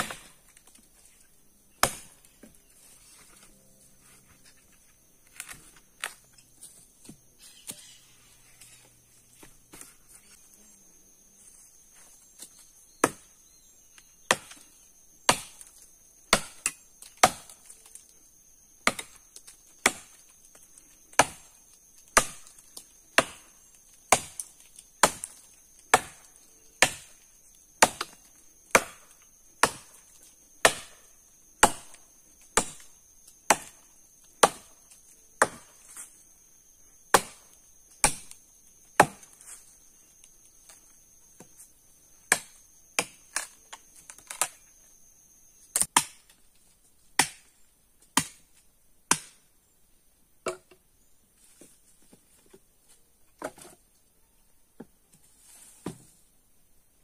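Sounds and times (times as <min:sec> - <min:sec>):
blade chopping dry wood: 0:00.0 - 0:00.8, 0:01.7 - 0:02.5, 0:15.3 - 0:15.7, 0:16.3 - 0:17.7, 0:18.8 - 0:20.2, 0:21.1 - 0:34.8, 0:35.4 - 0:36.0, 0:37.1 - 0:39.5, 0:42.2 - 0:44.6, 0:45.7 - 0:46.4, 0:47.2 - 0:47.5, 0:48.1 - 0:48.5, 0:49.1 - 0:49.4
high insect drone: 0:00.0 - 0:45.9.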